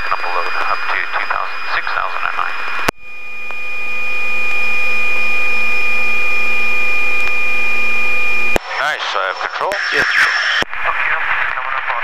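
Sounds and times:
helicopter turbine whine: 0.0 - 8.6.

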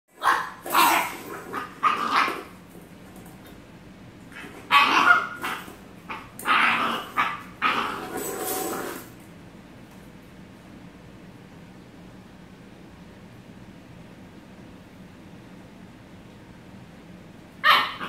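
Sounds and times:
puppy barking and yipping: 0.2 - 2.5, 4.4 - 8.3, 17.6 - 18.0
metal bowl clattering on tile: 8.0 - 9.1.

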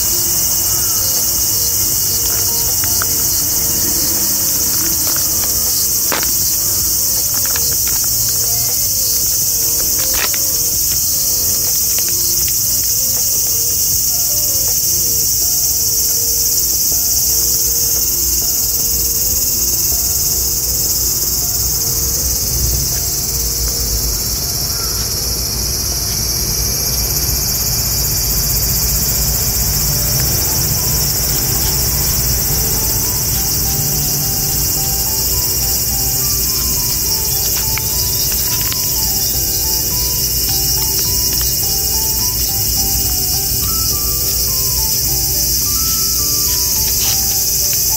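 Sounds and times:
insects shrilling: 0.0 - 47.9.

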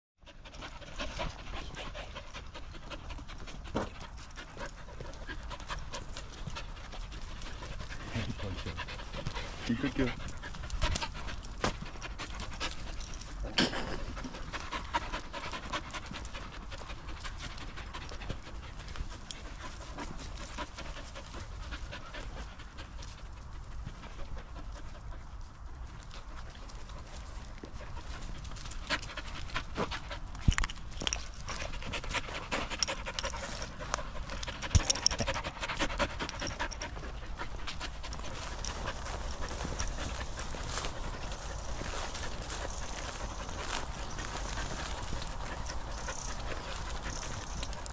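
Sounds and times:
dogs panting: 0.2 - 47.9
footsteps on leaves and twigs: 36.2 - 47.9.

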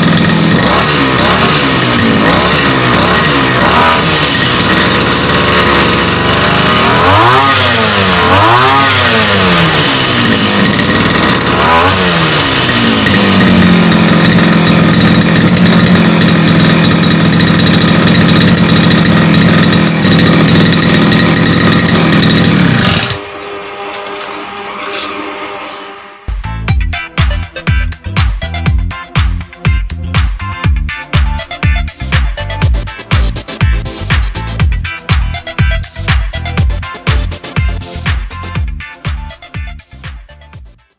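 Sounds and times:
brush cutter engine revving: 0.0 - 26.3.

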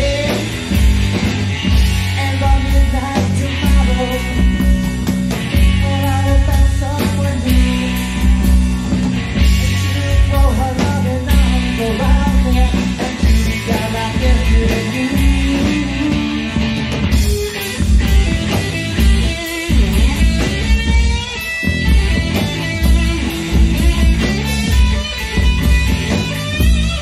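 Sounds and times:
lead singer singing: 0.0 - 0.9, 1.6 - 8.4, 9.4 - 17.8
bass guitar: 0.0 - 27.0
drum kit steady beat: 0.0 - 27.0
electric guitars: 0.0 - 27.0.

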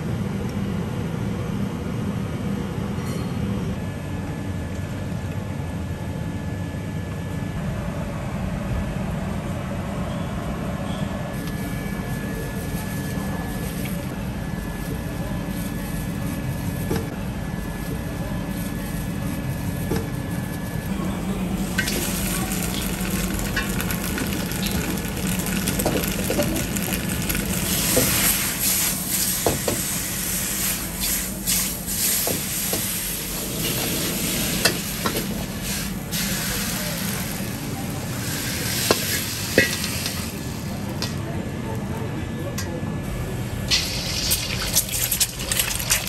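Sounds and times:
steady low hum: 0.0 - 46.0
noodles sizzling in a wok: 21.8 - 40.8, 43.7 - 46.0.

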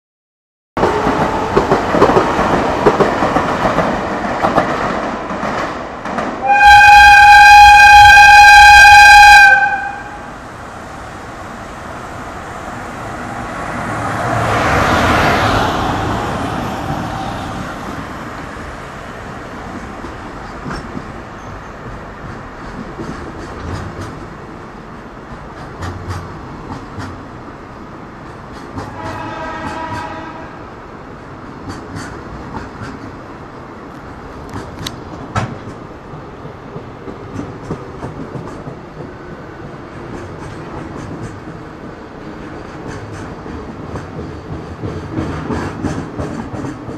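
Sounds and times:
electric locomotive passing: 0.8 - 46.9
train passing: 0.8 - 46.9
train horn blast: 6.4 - 10.3, 28.9 - 30.7
wheels clicking over rail joints: 19.6 - 27.4, 28.2 - 30.2, 31.4 - 33.3, 33.9 - 46.9.

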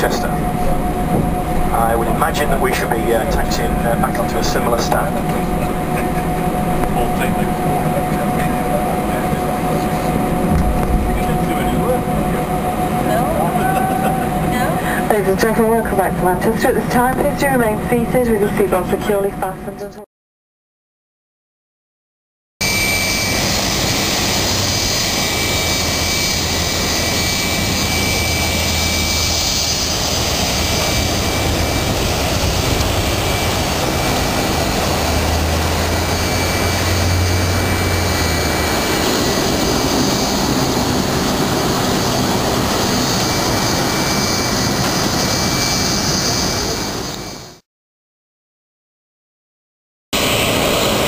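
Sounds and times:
jet engine rush and whistle: 0.0 - 18.8, 22.6 - 47.6, 50.2 - 51.0.

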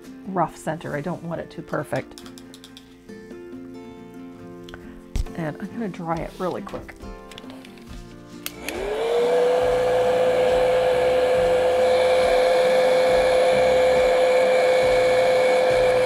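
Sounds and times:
hot-air dryer whining: 8.4 - 16.0.

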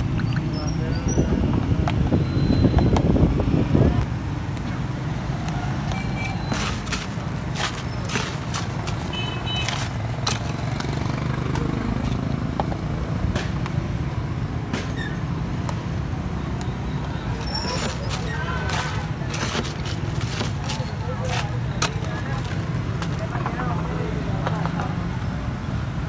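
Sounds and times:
street traffic rumble: 0.0 - 26.0
ice clinking into plastic cups: 6.2 - 11.3, 17.0 - 23.5.

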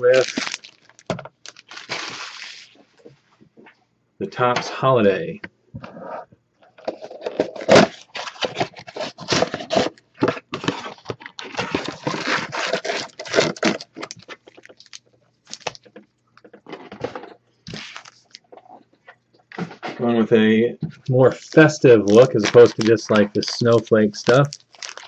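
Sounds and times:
cardboard tearing: 0.0 - 2.8, 7.0 - 15.8, 21.3 - 25.0
foil packs crackling: 0.0 - 2.8, 7.4 - 15.9, 21.2 - 25.0.

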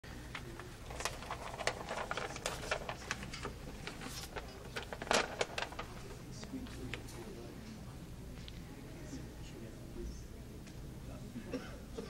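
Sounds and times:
paper rustling and crackling: 0.2 - 7.3.

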